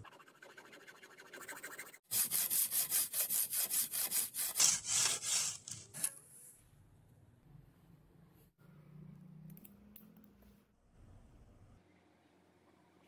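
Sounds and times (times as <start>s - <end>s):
hacksaw blade sawing wood: 2.1s - 5.9s.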